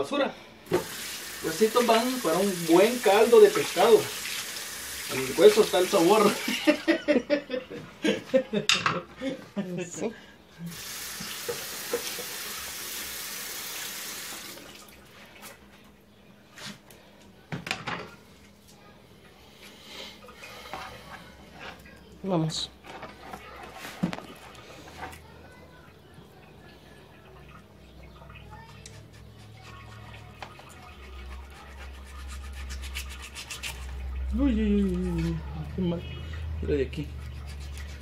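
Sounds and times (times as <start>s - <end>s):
faint handling noises: 22.8s - 26.8s
knife scraping on cutting board: 28.8s - 34.0s.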